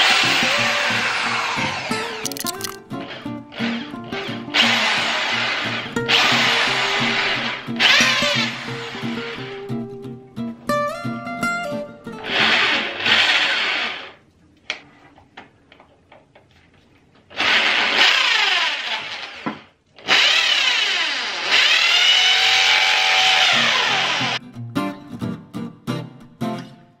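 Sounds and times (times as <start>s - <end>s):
electric drill whining: 0.0s - 9.6s, 12.3s - 14.1s, 17.4s - 24.4s
short clicks: 2.2s - 2.8s.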